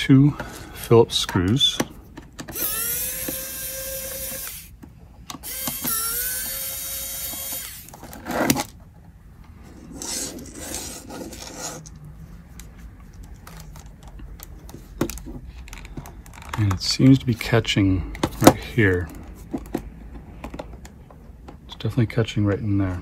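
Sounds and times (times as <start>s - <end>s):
electric screwdriver whirring: 2.5s - 4.8s, 5.4s - 8.0s
handling plastic case: 10.4s - 21.7s.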